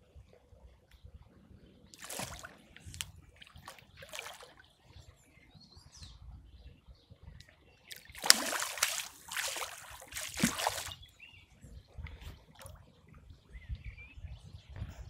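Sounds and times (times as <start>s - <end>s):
fish splashing at water surface: 2.0s - 4.6s, 7.9s - 11.0s.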